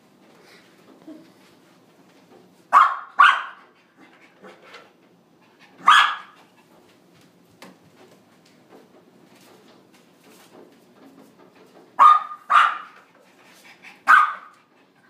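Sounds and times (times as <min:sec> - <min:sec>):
puppy barking: 0:02.7 - 0:03.7, 0:05.7 - 0:06.4, 0:12.0 - 0:13.0, 0:14.0 - 0:14.6.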